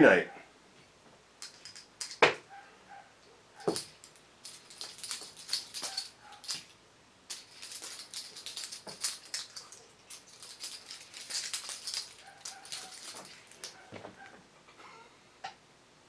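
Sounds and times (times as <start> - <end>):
metal chain jingling: 1.4 - 2.6, 3.6 - 14.3.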